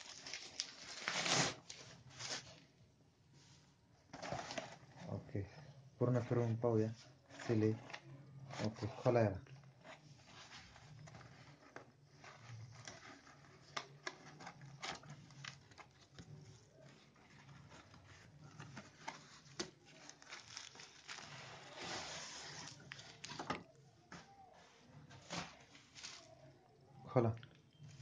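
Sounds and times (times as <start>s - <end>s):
cardboard rustling: 4.0s - 5.2s, 6.2s - 23.7s.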